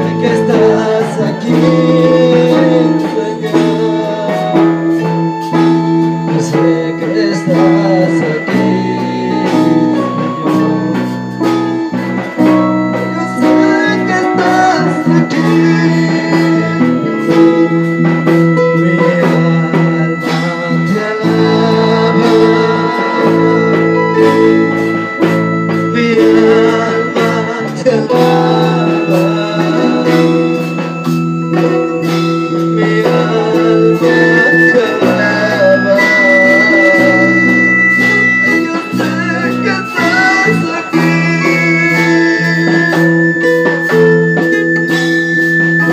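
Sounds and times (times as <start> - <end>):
drum kit steady beat: 0.0 - 45.9
held keyboard chords: 0.0 - 45.9.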